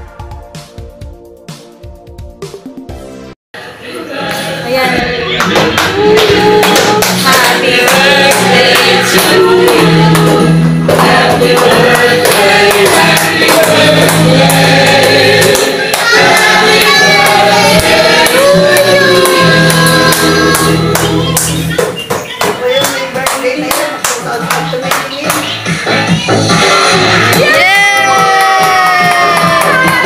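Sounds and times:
instrumental backing with beat: 0:00.0 - 0:03.4, 0:04.2 - 0:30.0
group of voices singing: 0:03.6 - 0:21.9.

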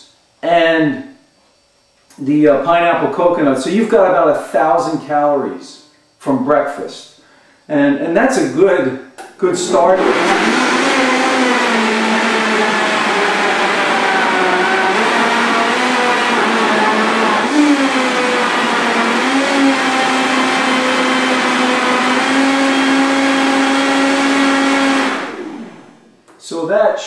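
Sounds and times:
blender motor running: 0:09.6 - 0:26.1.

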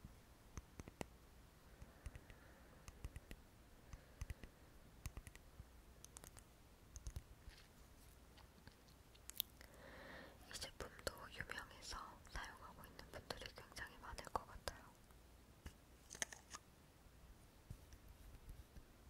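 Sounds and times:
faint clicks and light taps: 0:00.5 - 0:01.1, 0:01.8 - 0:09.8, 0:17.6 - 0:18.9.

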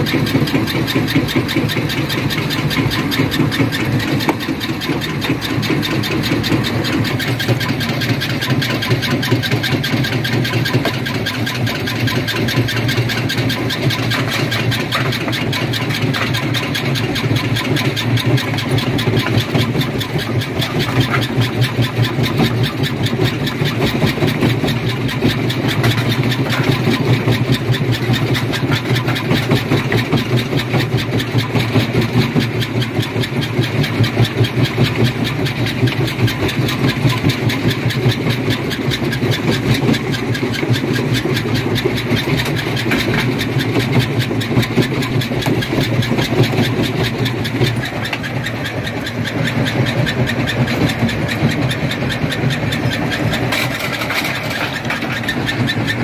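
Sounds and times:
stone crusher rattling: 0:00.0 - 0:56.0.

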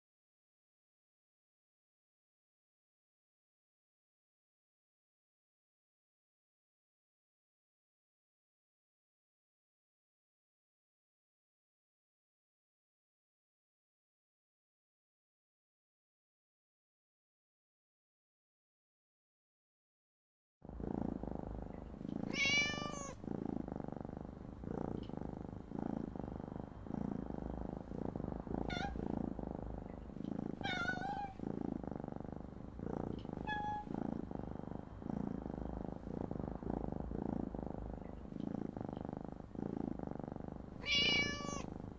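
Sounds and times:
cat purring: 0:20.6 - 0:41.9
cat meowing: 0:22.3 - 0:23.2, 0:28.6 - 0:29.0, 0:30.6 - 0:31.4, 0:33.4 - 0:33.9, 0:40.8 - 0:41.7.

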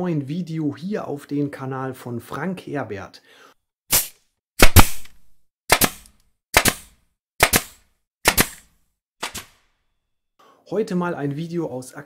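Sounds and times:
sharp double bangs: 0:03.9 - 0:05.1.

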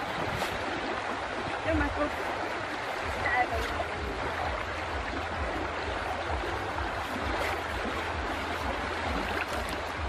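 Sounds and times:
river water flowing: 0:00.0 - 0:10.0
wind rumble on microphone: 0:00.0 - 0:10.0.

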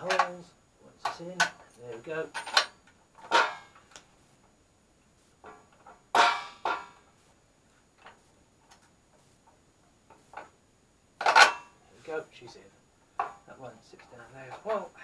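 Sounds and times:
metal clinks and knocks: 0:01.0 - 0:04.1, 0:05.4 - 0:07.1, 0:11.2 - 0:11.8, 0:13.1 - 0:14.8.

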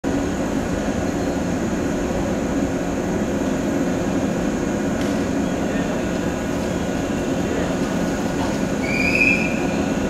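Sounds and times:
train equipment droning: 0:00.0 - 0:10.0.

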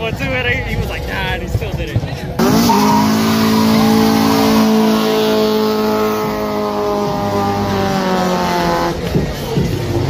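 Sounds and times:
car engine at high revs: 0:02.4 - 0:09.8.

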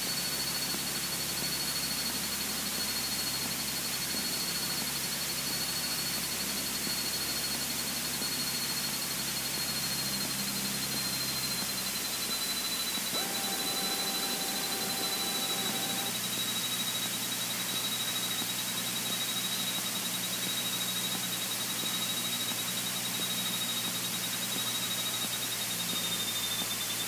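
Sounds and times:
high whine sinking in pitch: 0:13.2 - 0:16.2
steady tone: 0:13.2 - 0:16.2.

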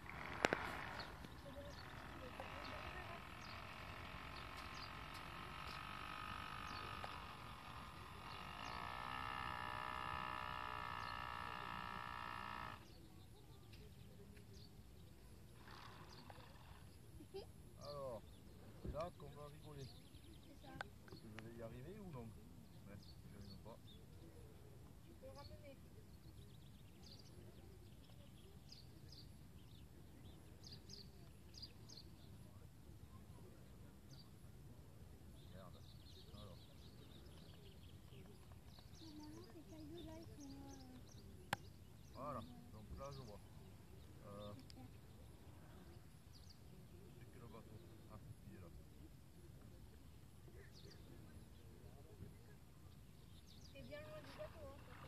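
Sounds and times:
model boat motor whining: 0:00.0 - 0:13.1, 0:15.4 - 0:17.2
small birds chirping: 0:00.0 - 0:55.0.

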